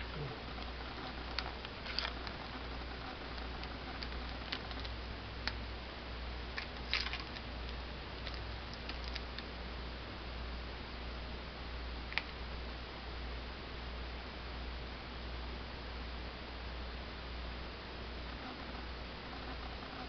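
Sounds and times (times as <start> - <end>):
low hum and hiss: 0.0 - 20.0
packaging and parts clicking: 6.6 - 7.4.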